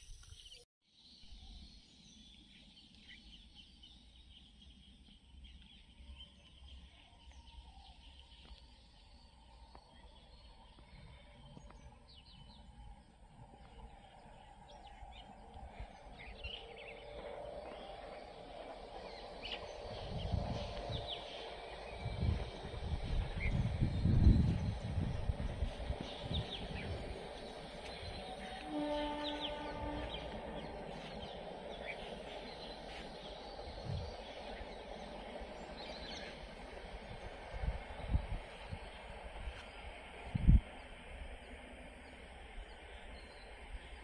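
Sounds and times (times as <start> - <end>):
low rumbling noise: 9.5 - 44.0.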